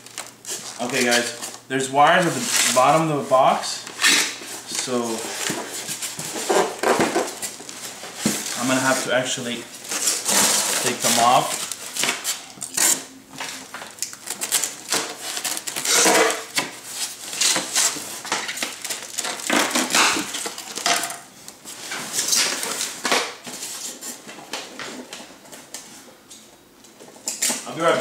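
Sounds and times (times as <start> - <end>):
plastic wrapping crinkling: 0.0 - 24.3.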